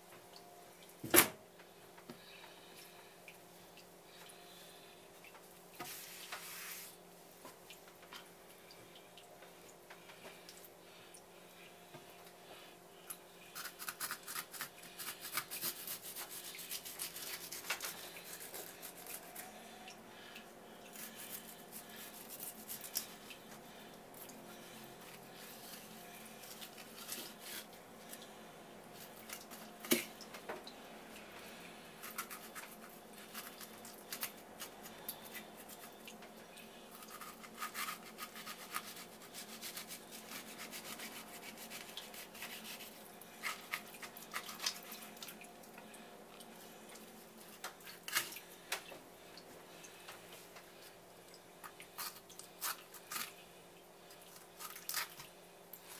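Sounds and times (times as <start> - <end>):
knife scraping fish flesh: 13.5 - 19.5, 20.9 - 23.2, 32.0 - 35.8, 37.0 - 45.0, 54.6 - 55.2.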